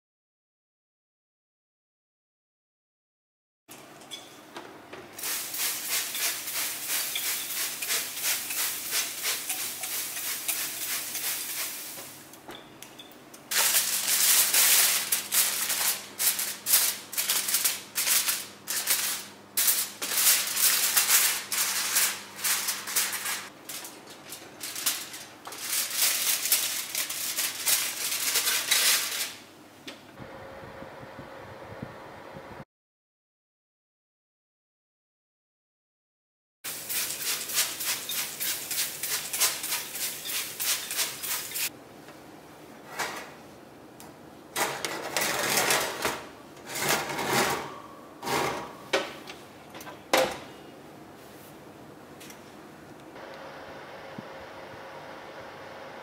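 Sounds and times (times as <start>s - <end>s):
aluminium foil crinkling: 13.5s - 29.4s, 36.8s - 41.7s.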